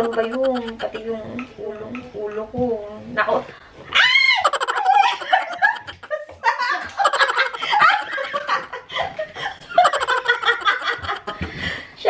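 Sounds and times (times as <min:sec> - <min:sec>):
woman laughing heartily: 0:00.0 - 0:01.0, 0:04.4 - 0:11.6.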